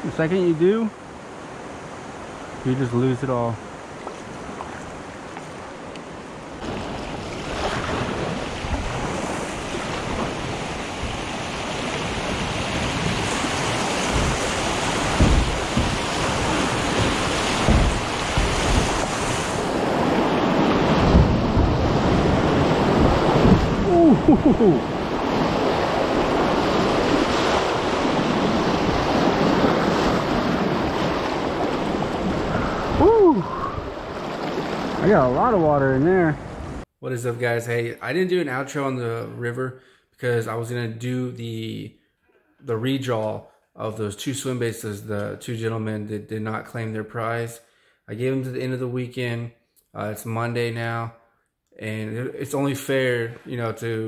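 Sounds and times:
water thumping against hull: 6.6s - 33.1s
wind on microphone: 6.6s - 35.8s.

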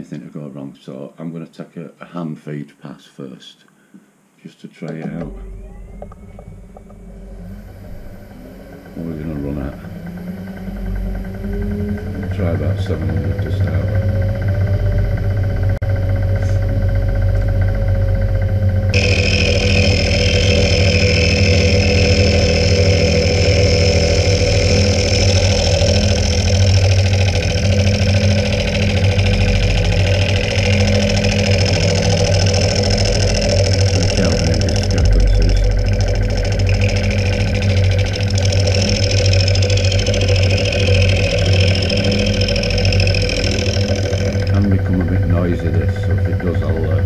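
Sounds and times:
spindle hum: 3.8s - 47.0s
milling cutter cutting metal: 18.9s - 47.0s.

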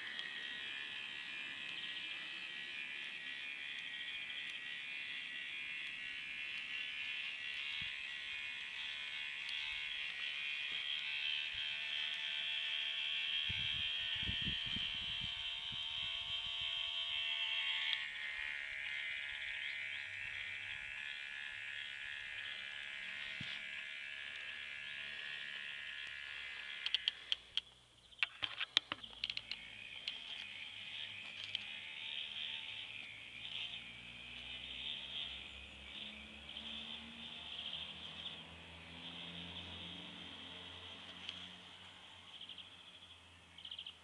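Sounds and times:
small electric motor whining: 0.0s - 44.0s
plastic clicks and clatters: 26.8s - 30.5s, 31.2s - 31.7s.

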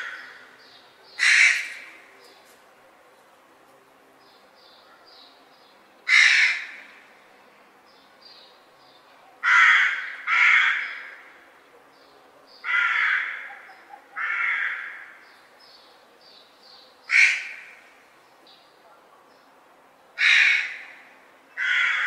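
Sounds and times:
crows cawing: 0.0s - 0.5s, 1.2s - 2.0s, 6.1s - 7.0s, 9.4s - 11.5s, 12.6s - 15.2s, 17.1s - 17.9s, 20.2s - 22.0s.

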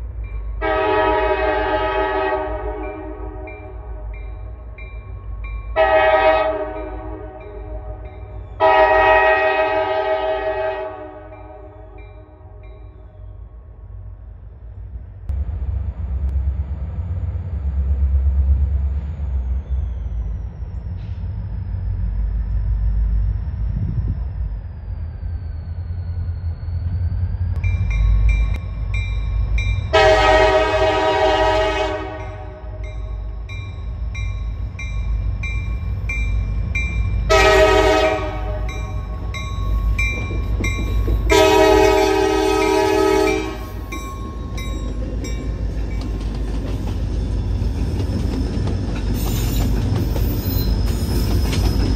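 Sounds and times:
diesel locomotives rumbling: 0.0s - 51.9s
locomotive air horn blasts: 0.6s - 4.2s, 5.8s - 12.6s, 29.9s - 32.9s, 37.3s - 39.2s, 41.3s - 43.9s.

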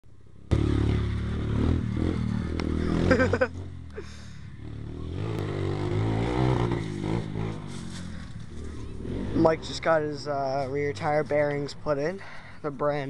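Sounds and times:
small motorbike engine revving: 0.5s - 9.8s.

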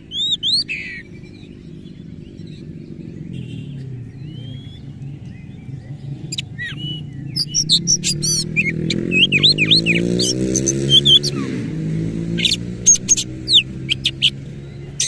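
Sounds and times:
bird singing: 0.0s - 15.0s.

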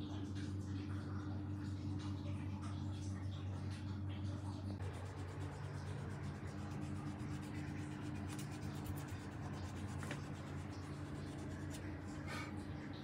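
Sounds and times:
steady low hum: 0.0s - 13.0s
scratchy handling sounds: 4.8s - 12.0s.

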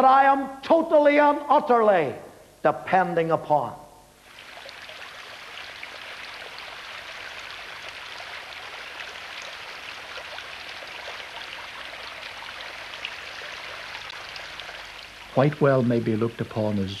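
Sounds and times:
water dripping: 4.2s - 16.5s.

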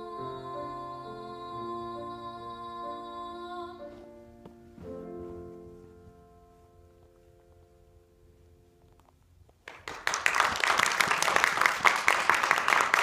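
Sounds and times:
piano chord: 0.0s - 8.8s
audience applause: 9.7s - 13.0s.

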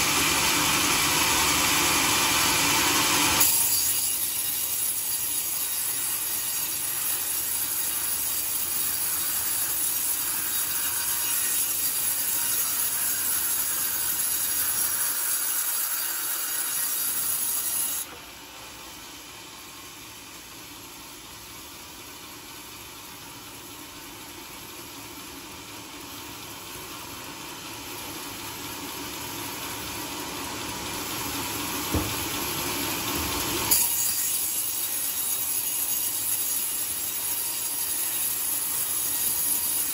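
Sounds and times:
band saw cutting log: 0.0s - 18.4s, 31.0s - 39.9s.

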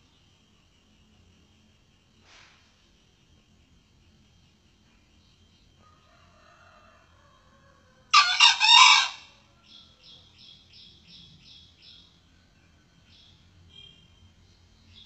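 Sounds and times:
rooster crowing: 5.8s - 10.0s
small bird chirping: 9.6s - 12.2s.

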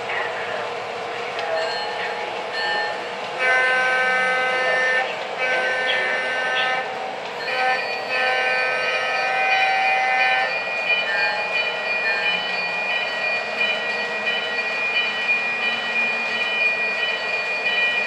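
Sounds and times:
model train running on track: 0.0s - 18.0s
train horn blowing: 3.4s - 11.4s.

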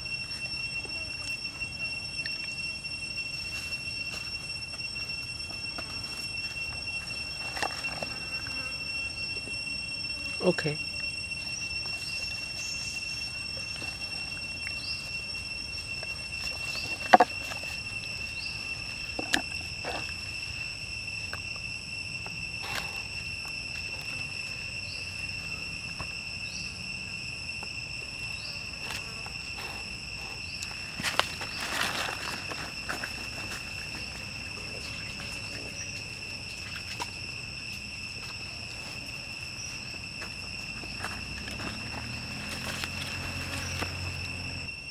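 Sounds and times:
high-pitched insect drone: 0.0s - 44.9s.

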